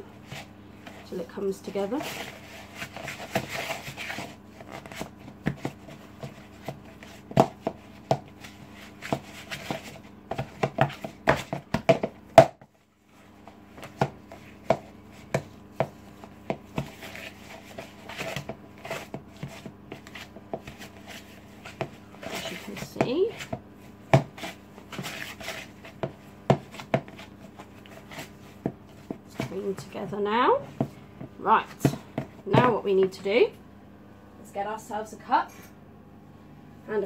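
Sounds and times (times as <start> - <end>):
oven fan hum: 0.0 - 37.0.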